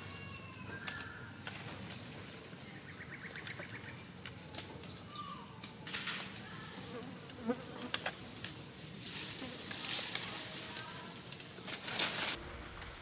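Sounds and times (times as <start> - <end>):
birds calling: 0.0 - 6.2
rustles in dry leaves: 0.0 - 12.5.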